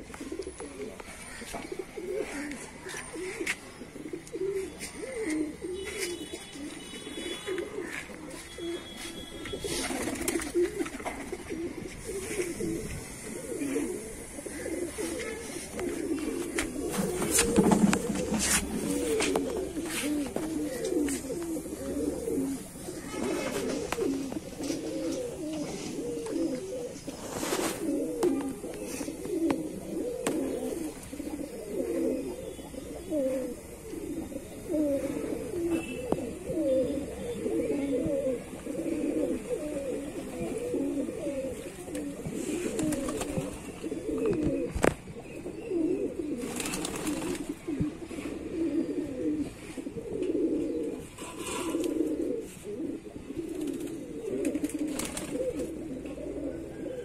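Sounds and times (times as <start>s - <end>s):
pigeons cooing: 0.0s - 57.0s
brief rustles: 15.0s - 21.3s.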